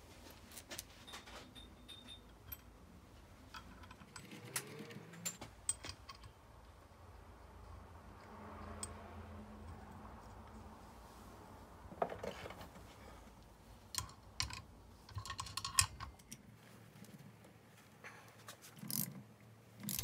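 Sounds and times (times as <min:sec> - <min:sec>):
small metal hardware clicking: 0:03.5 - 0:06.4, 0:13.9 - 0:16.4, 0:18.8 - 0:19.2, 0:19.8 - 0:20.0.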